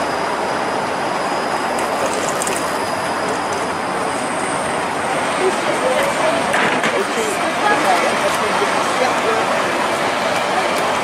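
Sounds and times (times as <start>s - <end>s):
streetcar rolling on track: 0.0s - 11.0s.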